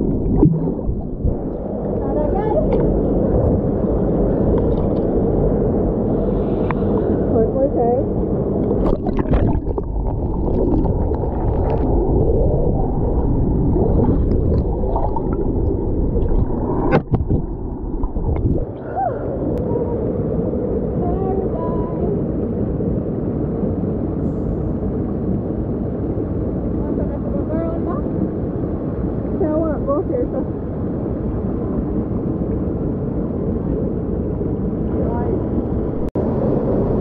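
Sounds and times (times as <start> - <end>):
water rushing over rocks: 0.0 - 5.5, 8.6 - 19.5
muffled underwater splashing: 0.0 - 19.9.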